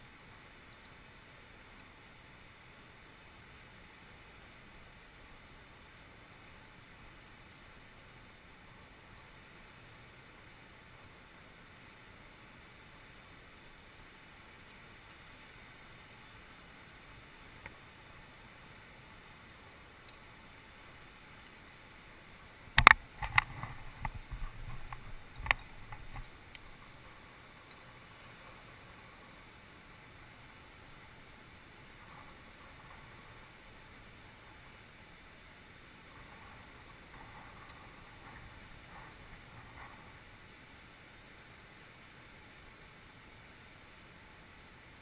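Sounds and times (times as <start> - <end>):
faint hiss: 0.0 - 45.0
sharp clicks and knocks: 22.7 - 26.7.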